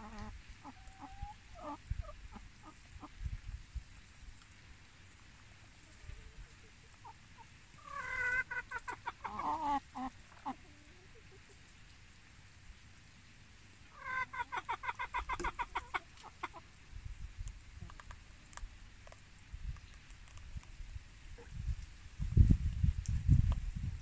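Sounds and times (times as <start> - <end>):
chicken clucking: 0.0 - 3.2, 6.4 - 11.7, 14.0 - 16.6.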